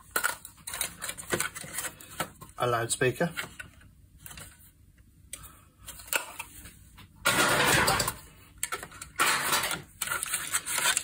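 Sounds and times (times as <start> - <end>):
plastic scraping and rattling: 0.0 - 2.5, 7.2 - 11.0.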